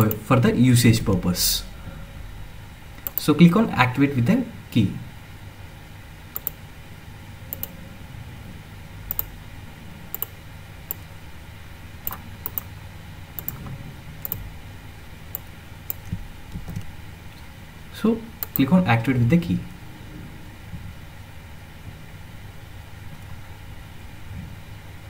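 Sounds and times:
faint low hum: 0:00.0 - 0:25.0
mouse and keyboard clicks: 0:06.4 - 0:06.6, 0:12.1 - 0:12.7, 0:13.4 - 0:14.4.

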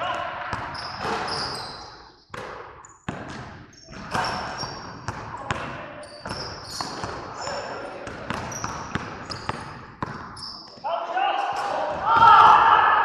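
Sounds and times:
sneakers squeaking on wood: 0:00.6 - 0:05.1, 0:06.0 - 0:10.8
basketball bouncing on wooden floor: 0:02.3 - 0:03.6, 0:08.0 - 0:10.3.

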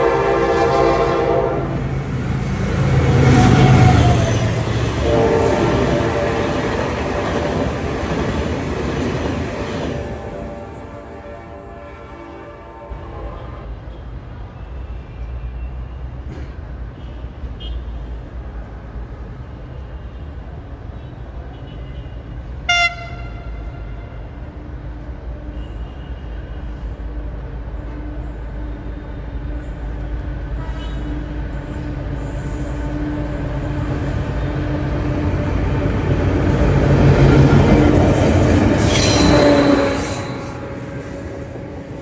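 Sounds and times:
train horn blast: 0:00.0 - 0:01.9, 0:03.0 - 0:07.2, 0:09.8 - 0:13.7, 0:21.6 - 0:24.3, 0:30.5 - 0:35.6, 0:36.9 - 0:42.0
locomotive engine rumbling: 0:00.0 - 0:11.8.

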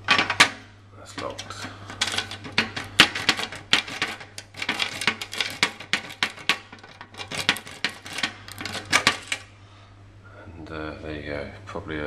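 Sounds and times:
lock rake scraping and clicking: 0:01.2 - 0:09.5.

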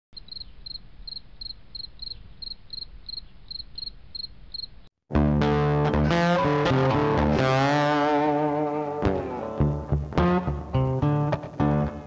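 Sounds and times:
loud guitar music: 0:05.1 - 0:12.0.

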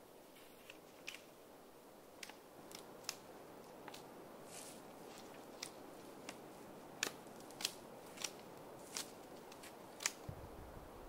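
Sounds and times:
knife scraping bark off branch: 0:07.0 - 0:10.2.

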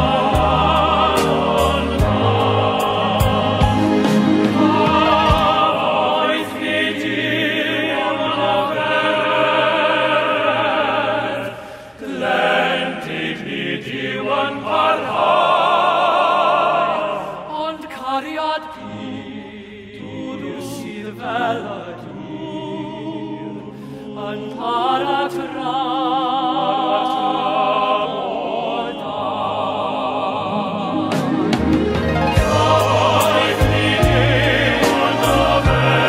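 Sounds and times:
male choir singing in harmony: 0:00.0 - 0:36.0
chamber orchestra: 0:28.4 - 0:36.0.

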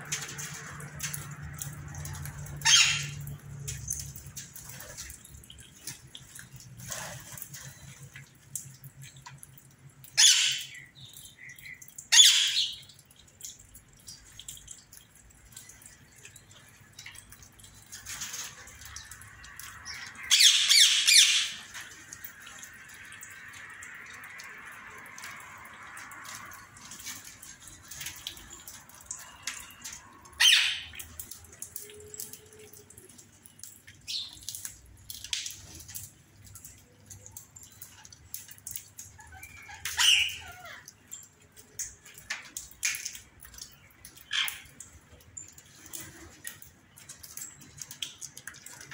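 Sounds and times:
parakeets squawking: 0:02.6 - 0:03.2, 0:10.2 - 0:10.7, 0:12.1 - 0:12.7, 0:20.2 - 0:21.6, 0:30.4 - 0:30.9, 0:39.3 - 0:40.8.

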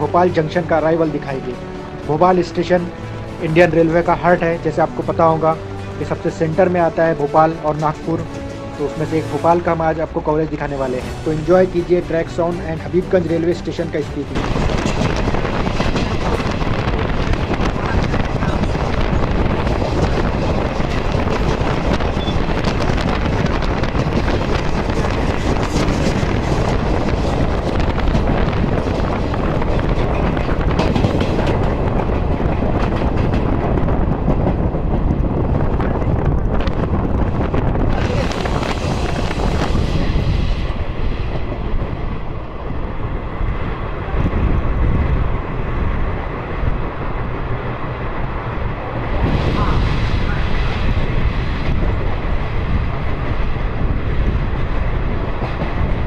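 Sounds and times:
train wheels rumbling on track: 0:00.0 - 0:56.0
wind buffeting microphone: 0:14.2 - 0:56.0.

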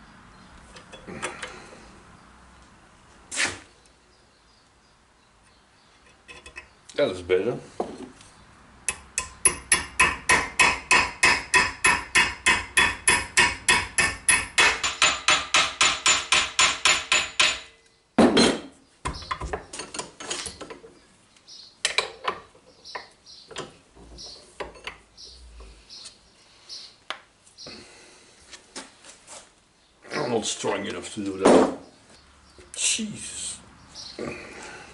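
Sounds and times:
hammer striking metal rivet: 0:08.9 - 0:20.1.

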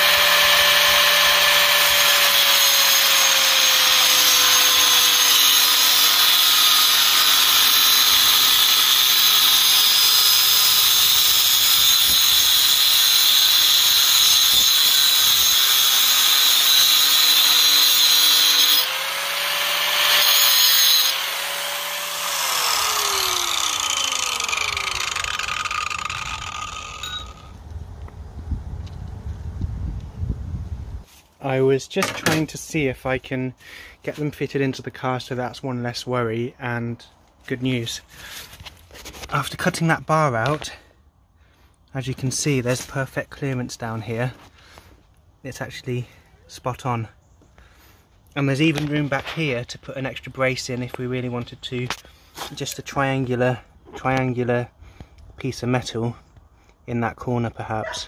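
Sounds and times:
angle grinder cutting steel: 0:00.0 - 0:27.6
grinder spinning down: 0:00.0 - 0:27.6.

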